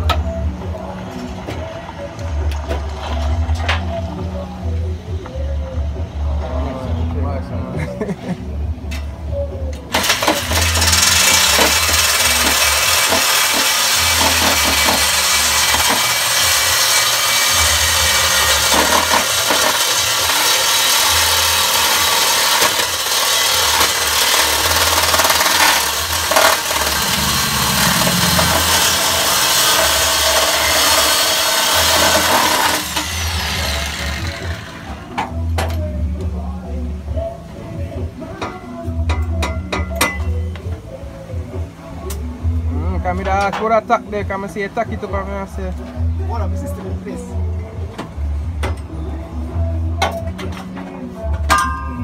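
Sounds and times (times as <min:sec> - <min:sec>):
motor winding down whine: 0:09.9 - 0:35.1
power tool cutting steel pipe: 0:09.9 - 0:35.1.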